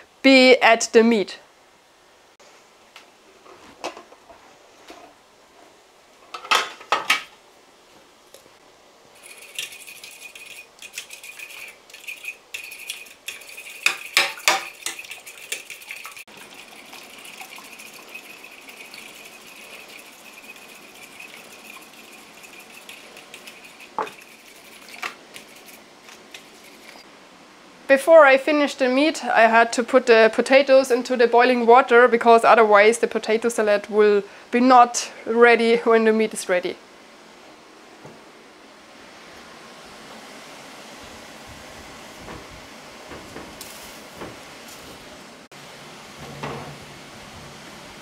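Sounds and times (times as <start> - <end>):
fork clinking against bowl: 9.2 - 16.2.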